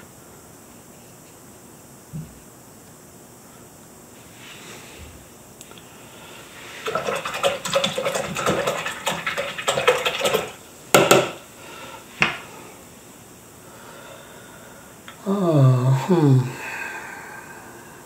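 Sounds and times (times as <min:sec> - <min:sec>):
sharp knocks: 0:10.2 - 0:11.4.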